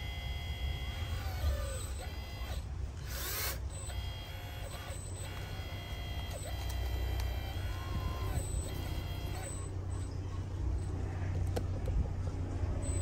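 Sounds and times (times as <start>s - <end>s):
hydraulic pump whining: 0.0s - 11.0s.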